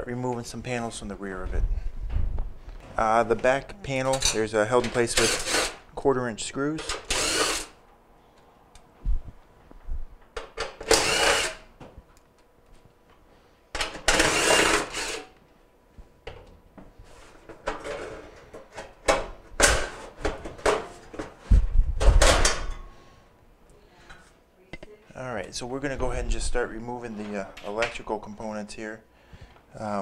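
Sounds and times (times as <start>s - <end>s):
cordless drill spinning out screws: 5.2s - 5.8s, 6.8s - 7.8s, 10.8s - 11.6s, 14.1s - 15.3s.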